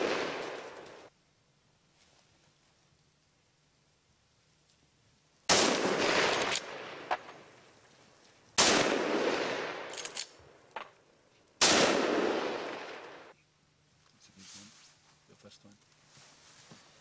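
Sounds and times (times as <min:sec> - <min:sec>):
rifle shots with echo: 0:00.0 - 0:01.1, 0:05.5 - 0:07.5, 0:08.6 - 0:10.3, 0:11.6 - 0:13.3.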